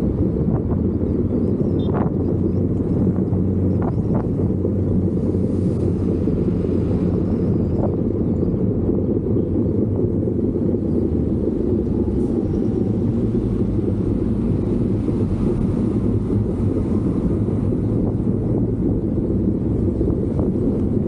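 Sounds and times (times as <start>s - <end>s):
vehicle rumble: 0.0s - 21.0s
wind on microphone: 0.0s - 21.0s.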